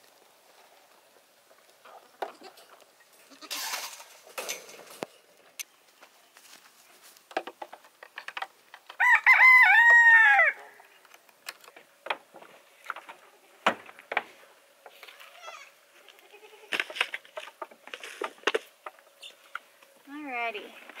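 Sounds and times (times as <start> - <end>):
rooster crowing: 9.0 - 10.8.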